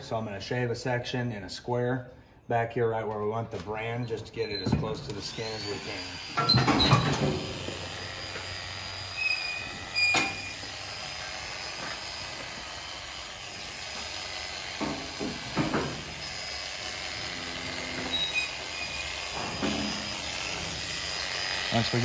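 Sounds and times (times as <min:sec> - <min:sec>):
electric clippers running: 0:05.1 - 0:22.0.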